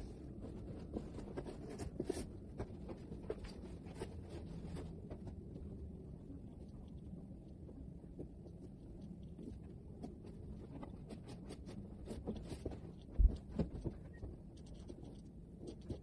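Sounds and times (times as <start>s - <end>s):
low room hum: 0.0s - 16.0s
bedding rustling and tapping: 9.4s - 16.0s.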